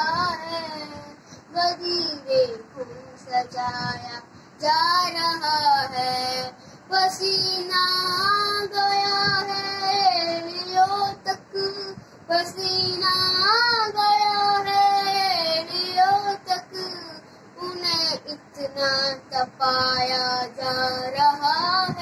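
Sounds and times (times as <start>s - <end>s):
boy singing devotional song: 0.0s - 22.0s.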